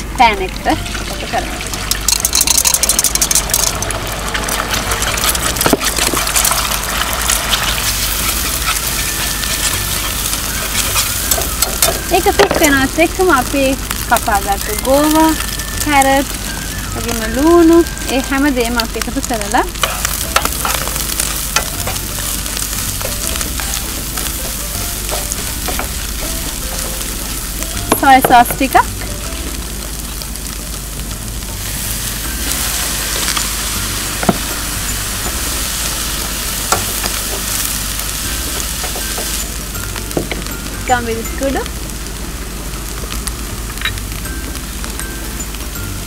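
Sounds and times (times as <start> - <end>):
eggs sizzling in frying pan: 0.0 - 46.0
wire whisk stirring: 2.1 - 3.9, 4.7 - 12.6.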